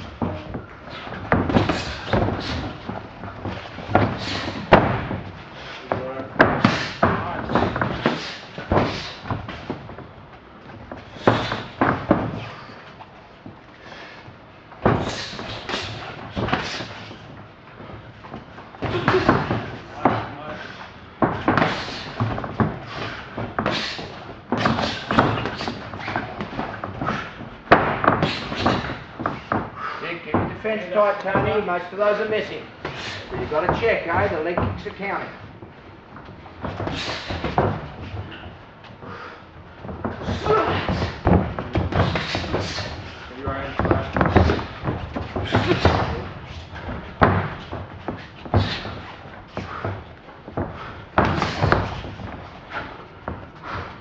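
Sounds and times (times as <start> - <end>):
kicks and punches landing: 39.8 - 53.5.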